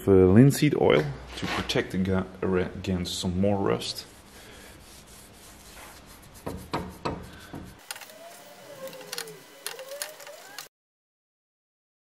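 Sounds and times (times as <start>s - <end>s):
rag rubbing on metal: 3.8s - 7.9s.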